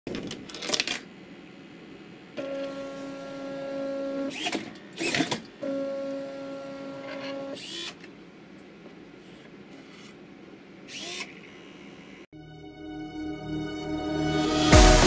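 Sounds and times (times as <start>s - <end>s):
clicking and servo whirring: 4.3s - 5.5s, 10.9s - 11.8s.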